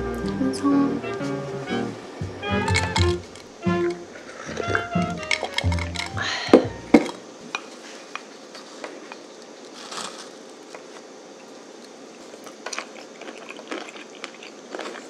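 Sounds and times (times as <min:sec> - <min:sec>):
room hiss: 0:00.0 - 0:14.8.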